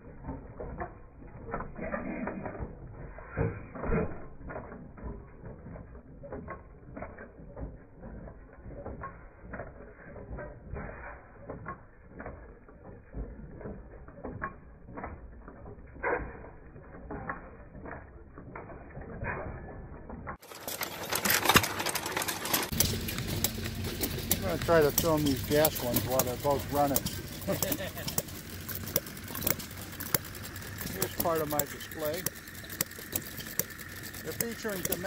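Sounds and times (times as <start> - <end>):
machinery clattering: 0.0 - 35.0.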